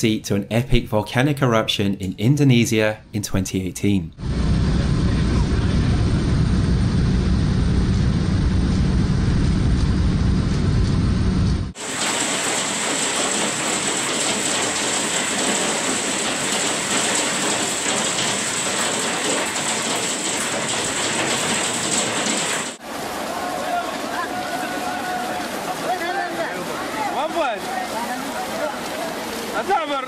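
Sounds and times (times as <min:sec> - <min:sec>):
propeller airliner cabin drone: 0:04.2 - 0:22.8
hail pelting glass: 0:11.8 - 0:22.8.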